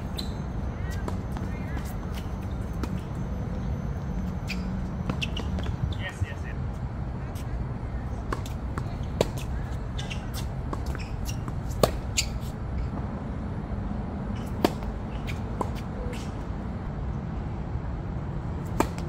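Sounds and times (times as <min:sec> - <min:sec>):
racket strikes and ball bounces: 0:04.4 - 0:05.9, 0:08.1 - 0:12.9, 0:14.3 - 0:16.5, 0:18.6 - 0:19.0.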